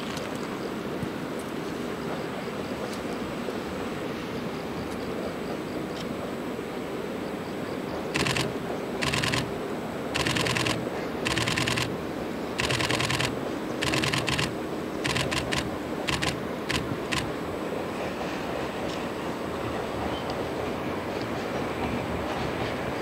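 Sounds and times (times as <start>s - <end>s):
distant diesel locomotive rumble: 0.4s - 23.0s
camera shutter clicking: 8.2s - 9.5s, 10.2s - 11.9s, 12.6s - 17.3s.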